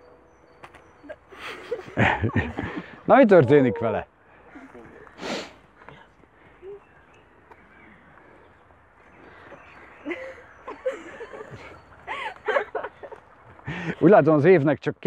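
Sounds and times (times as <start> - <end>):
group of voices murmuring: 1.9 - 7.1.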